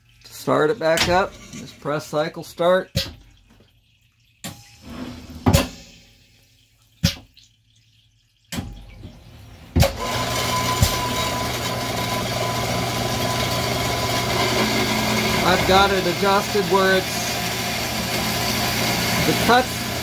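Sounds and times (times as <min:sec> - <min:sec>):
bandsaw blade motor running: 0:09.9 - 0:20.0.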